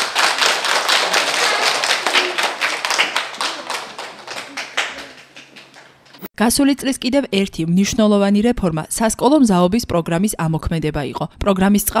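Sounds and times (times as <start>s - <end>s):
people clapping: 0.0s - 6.3s.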